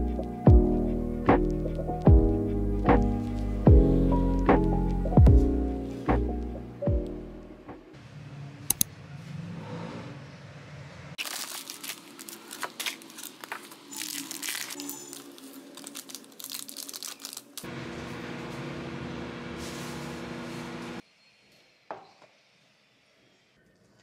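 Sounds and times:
plastic pouches crinkling: 11.2 - 17.7
microwave oven humming: 17.7 - 21.0.

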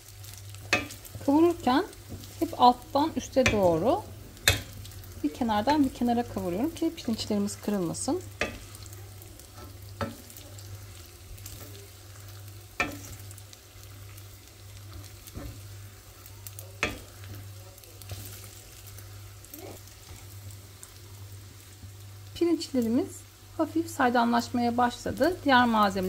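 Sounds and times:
rice sizzling in a pot: 0.0 - 26.0
wooden spoon knocking a pot: 8.3 - 8.8.

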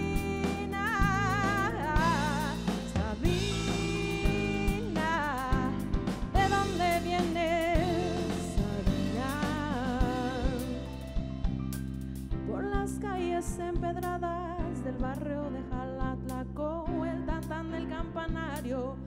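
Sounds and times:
woman singing a slow ballad: 0.0 - 11.2, 12.3 - 19.0
live band playing: 0.0 - 12.4
drum hits: 0.0 - 12.5.

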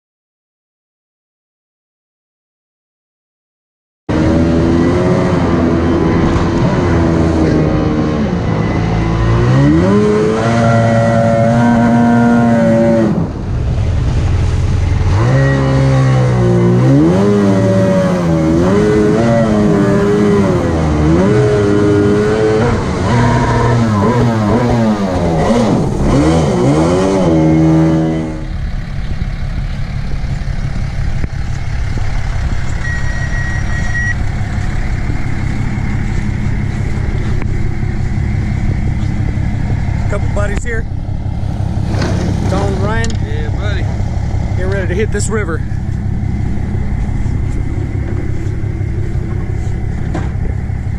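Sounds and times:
boat outboard engine: 4.1 - 50.9
water rushing: 13.3 - 19.0.

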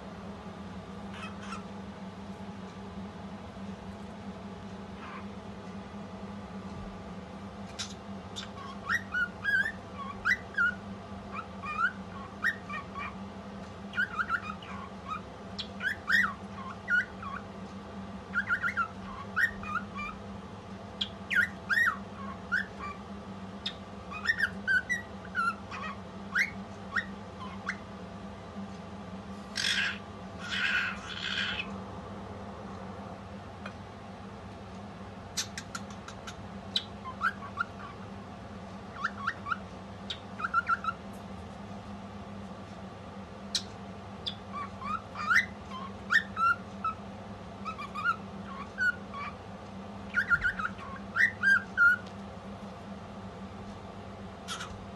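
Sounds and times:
harsh cockatiel calls: 1.1 - 1.7, 5.0 - 5.3, 7.7 - 13.2, 13.9 - 17.5, 18.3 - 20.2, 21.0 - 23.0, 23.6 - 27.9, 29.5 - 31.7, 35.4 - 38.1, 38.9 - 41.0, 43.5 - 47.0, 47.6 - 49.4, 50.1 - 52.1, 54.5 - 54.8
cockatiel whistled chirps: 8.4 - 10.8, 14.0 - 17.4, 18.3 - 20.2, 21.0 - 23.0, 23.6 - 27.8, 39.0 - 41.0, 44.3 - 47.0, 50.1 - 52.0.

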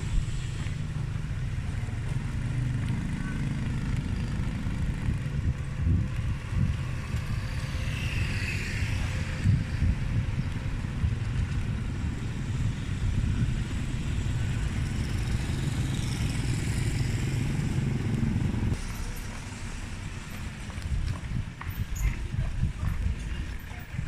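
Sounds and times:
motorcycles running: 0.0 - 24.0
vehicle engines rumbling: 0.0 - 24.0.

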